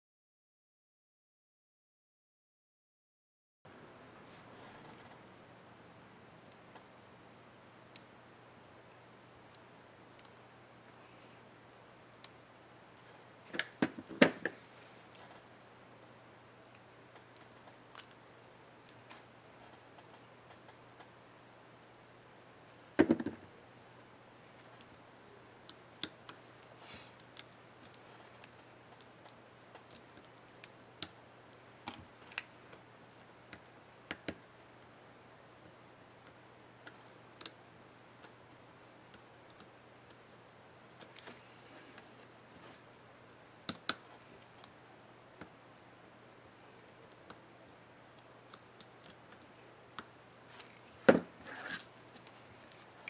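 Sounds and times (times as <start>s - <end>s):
faint steady hum: 3.7s - 53.0s
small plastic clicks and snaps: 43.6s - 44.8s.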